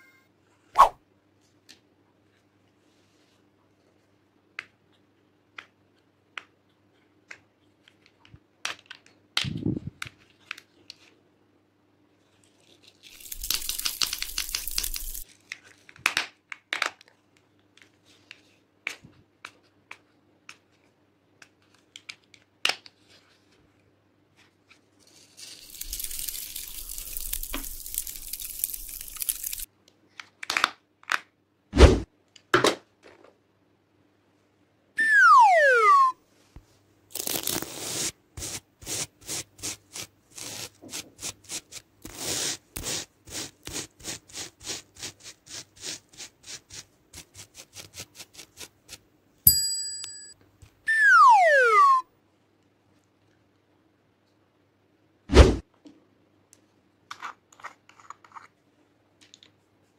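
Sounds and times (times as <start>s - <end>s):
glitter pouring onto glass dish: 13.1s - 15.2s, 25.5s - 29.7s.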